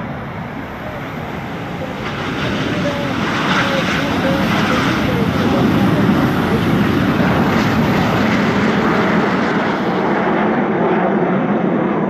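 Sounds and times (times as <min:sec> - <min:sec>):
jet engines at take-off power: 0:00.0 - 0:12.0.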